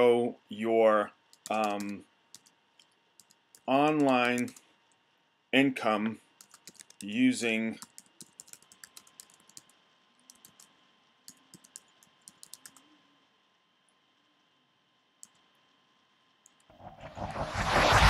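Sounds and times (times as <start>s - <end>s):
faint keyboard typing: 1.2s - 5.0s, 6.4s - 13.0s, 15.2s - 15.5s, 16.3s - 16.7s.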